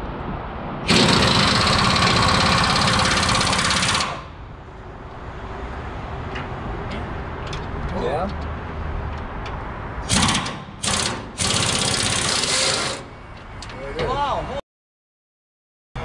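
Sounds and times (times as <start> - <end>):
impact wrench hammering: 10.1 - 13.0.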